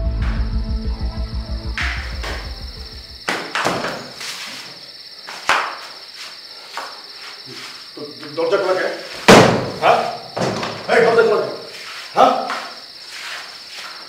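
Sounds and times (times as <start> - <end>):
low throbbing music beat: 0.0 - 3.2
insects chirring: 0.0 - 14.0
dull thuds: 9.2 - 11.0
sharp knock: 9.3 - 10.8.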